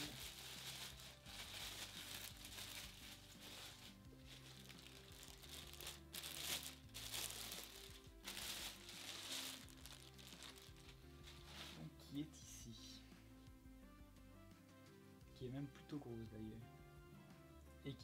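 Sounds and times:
plastic bag crinkling: 0.0 - 11.9
quiet background music: 0.0 - 18.0.

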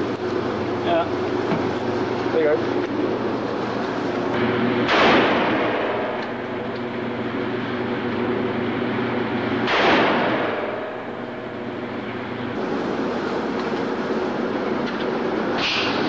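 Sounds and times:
pistol shots echoing: 4.8 - 6.5, 9.6 - 11.0.

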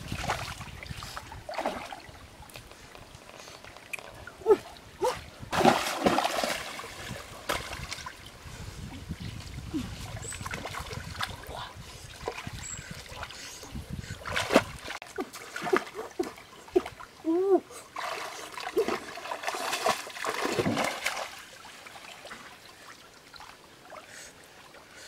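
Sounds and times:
water splashing: 0.0 - 8.4, 14.2 - 17.1, 17.9 - 24.3
stream water trickling: 0.0 - 25.0.

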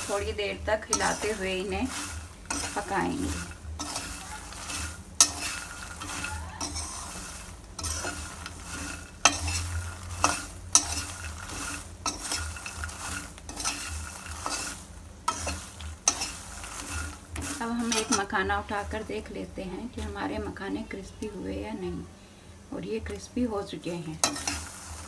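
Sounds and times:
spatula clinking on metal: 0.0 - 18.4, 24.2 - 25.0
spatula scraping a pan: 0.0 - 19.3, 24.2 - 25.0
sizzle: 0.0 - 25.0.

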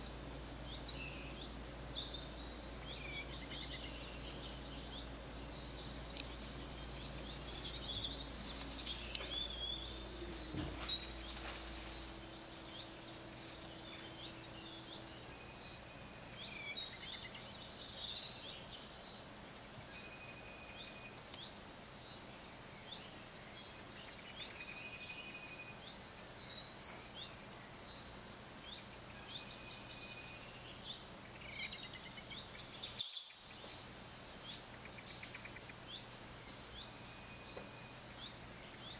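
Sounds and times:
low hum: 0.0 - 21.6
small birds chirping: 0.0 - 38.9
steady high whine: 0.0 - 38.9.

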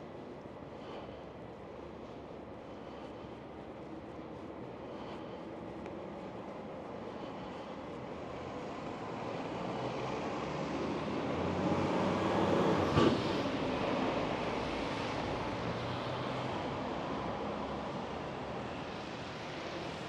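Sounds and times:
vehicle passing by: 8.9 - 16.7.

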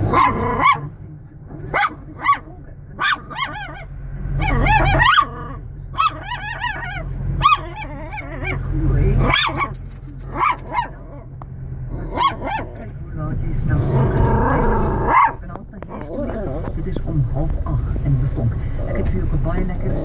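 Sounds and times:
small dog barking and yipping: 0.0 - 0.9, 1.7 - 8.6, 9.2 - 11.1, 12.1 - 12.7, 15.0 - 15.4
car interior hum: 0.0 - 20.0.

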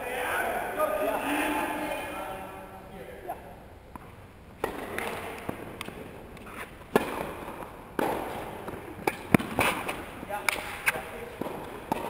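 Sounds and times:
tennis balls struck by racquets: 3.9 - 12.0.

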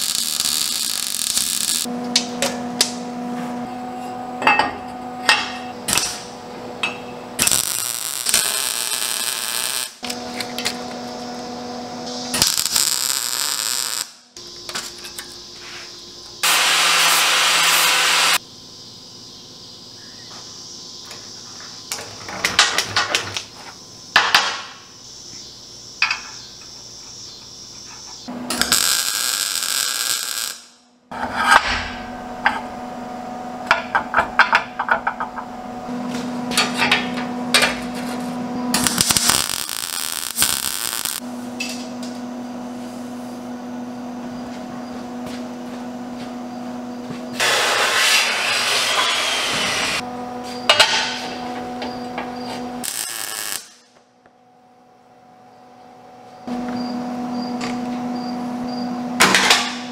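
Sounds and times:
welding crackle: 0.0 - 2.3, 5.9 - 6.3, 7.4 - 11.2, 12.2 - 14.2, 16.4 - 18.4, 28.5 - 30.8, 38.7 - 41.2, 52.8 - 53.9.

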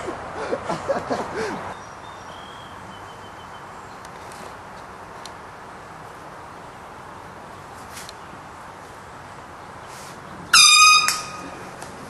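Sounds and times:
outdoor background hiss: 0.0 - 12.0.

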